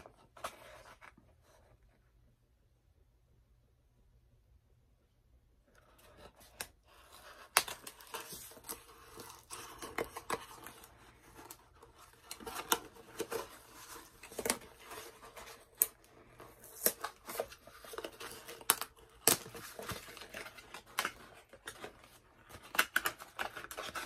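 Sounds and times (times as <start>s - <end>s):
cardboard packaging rustling and tearing: 6.0s - 24.0s.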